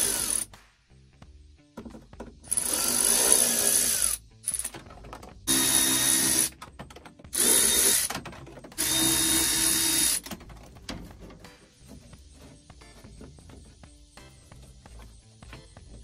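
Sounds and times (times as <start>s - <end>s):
power drill running: 2.5s - 4.7s, 5.5s - 6.5s, 7.3s - 8.1s, 8.8s - 10.3s.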